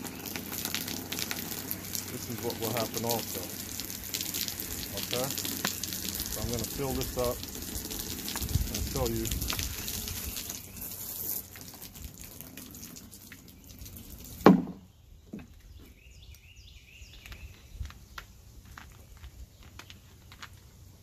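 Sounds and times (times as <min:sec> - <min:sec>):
water dripping: 0:00.0 - 0:14.8
loud thump: 0:14.4 - 0:14.8
plastic bottle crinkling: 0:17.2 - 0:20.8.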